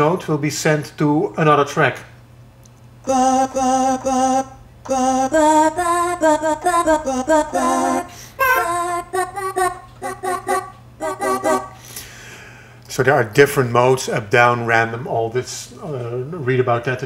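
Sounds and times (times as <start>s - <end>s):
sampled woman's singing notes: 3.0s - 11.8s.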